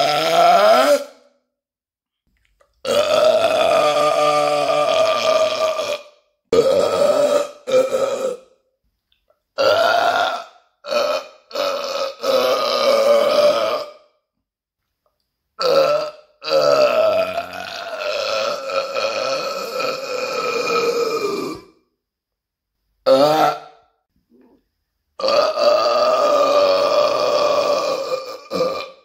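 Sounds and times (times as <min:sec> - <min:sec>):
man burping: 0:00.0 - 0:01.3, 0:02.8 - 0:08.6, 0:09.6 - 0:14.2, 0:15.6 - 0:21.9, 0:23.0 - 0:24.0, 0:25.2 - 0:29.0.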